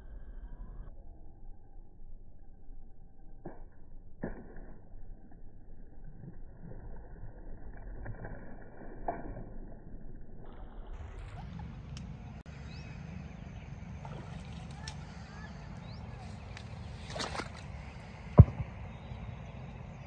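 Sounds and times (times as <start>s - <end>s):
faint bird chirps: 11.4s - 20.0s
water splashing and churning: 13.8s - 19.9s.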